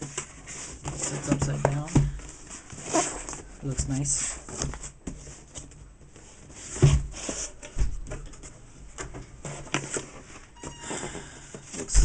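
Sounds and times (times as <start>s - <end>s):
cardboard box knocks and scrapes: 6.6s - 8.1s.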